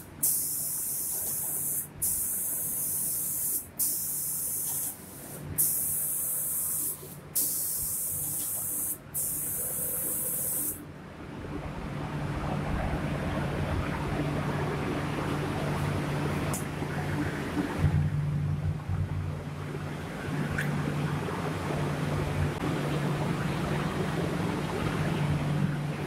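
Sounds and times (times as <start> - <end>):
spray gun hissing: 0.0 - 10.8
low machine hum: 9.4 - 26.0.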